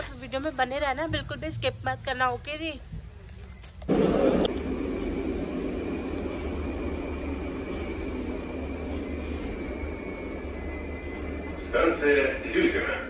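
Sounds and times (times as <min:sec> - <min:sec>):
train rumbling: 0:00.0 - 0:13.0
high-pitched whine: 0:03.5 - 0:13.0.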